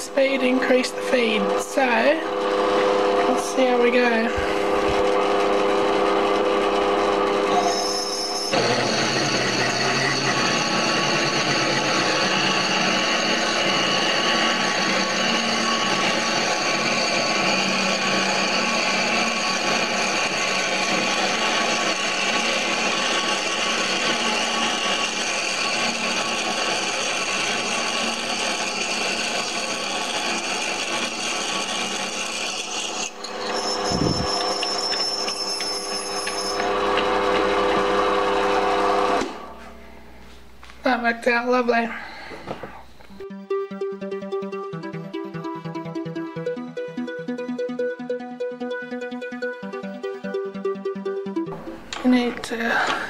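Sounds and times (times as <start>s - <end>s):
lathe drilling grinding: 0.0s - 39.7s
lathe running whine: 0.0s - 40.3s.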